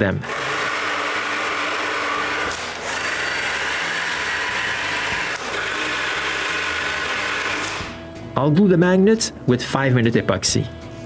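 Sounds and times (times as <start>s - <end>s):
power drill boring into wood: 0.2s - 8.0s.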